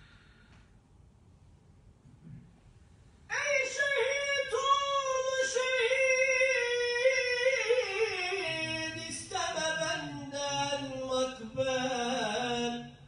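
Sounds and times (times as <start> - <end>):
man singing into microphone: 3.3 - 13.0.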